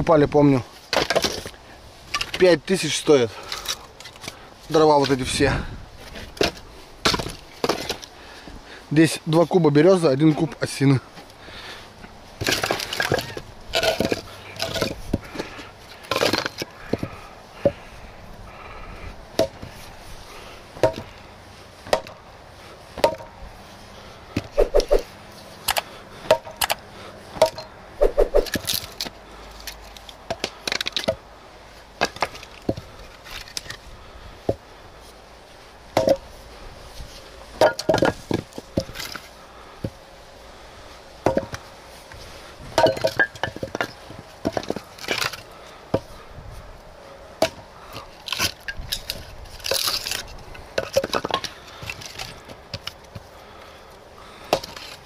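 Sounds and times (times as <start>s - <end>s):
hatchet chopping firewood: 0.9s - 2.5s, 6.1s - 8.1s, 12.4s - 17.8s, 19.3s - 19.8s, 20.8s - 21.2s, 21.8s - 22.2s, 23.0s - 23.4s, 24.3s - 26.8s, 27.4s - 31.3s, 32.0s - 33.8s, 35.9s - 36.3s, 37.6s - 40.0s, 41.2s - 41.7s, 42.7s - 46.2s, 47.4s - 53.6s, 54.2s - 55.0s.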